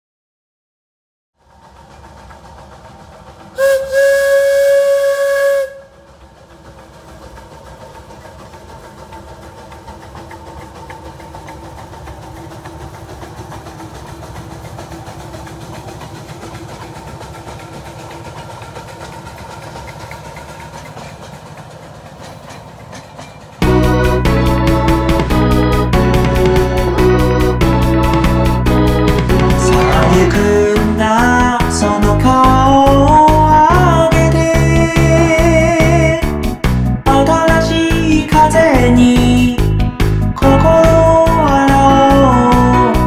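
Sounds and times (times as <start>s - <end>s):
steam hissing: 1.4s - 23.7s
steam train running past: 1.4s - 43.0s
steam locomotive whistle: 3.5s - 6.4s.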